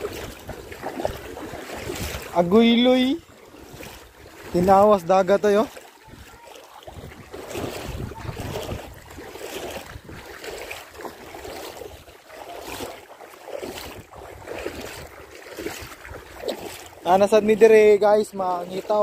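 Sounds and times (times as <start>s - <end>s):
wind on microphone: 0.0s - 2.4s, 6.0s - 10.6s
seawater sloshing and lapping: 0.0s - 19.0s.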